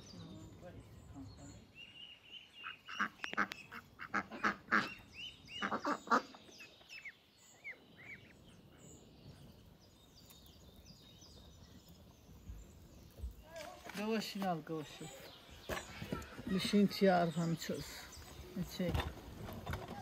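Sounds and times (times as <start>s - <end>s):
fowl harsh calls: 2.6s - 6.4s.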